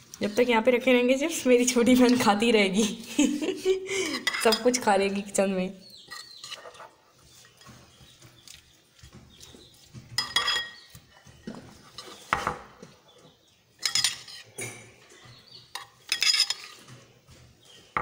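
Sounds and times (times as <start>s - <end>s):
metal spoon scraping a bowl: 1.8s - 2.4s, 4.1s - 4.9s, 6.0s - 12.6s, 13.8s - 14.6s, 15.3s - 17.0s.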